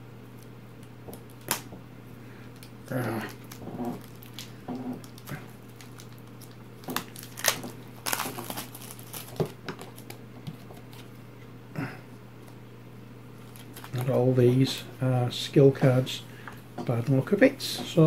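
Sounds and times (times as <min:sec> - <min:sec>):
steady low hum: 0:00.0 - 0:18.0
plastic wrap crinkling: 0:02.5 - 0:11.1, 0:13.4 - 0:14.8.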